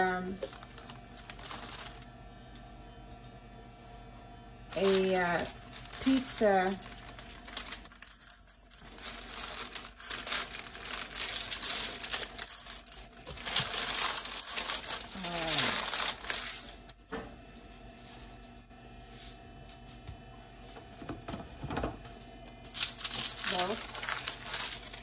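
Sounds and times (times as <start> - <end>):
parchment paper rustling: 0.0 - 16.9, 22.6 - 25.0.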